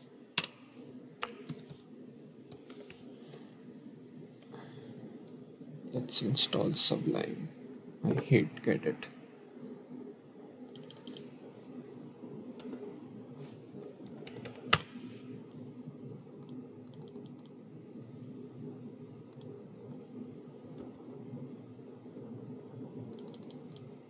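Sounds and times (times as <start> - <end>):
steady low hum: 0.0 - 24.0
keyboard typing: 0.4 - 0.6, 1.2 - 1.9, 2.5 - 3.5, 10.7 - 11.3, 11.9 - 12.9, 13.8 - 14.9, 16.4 - 17.6, 19.3 - 20.1, 23.1 - 24.0.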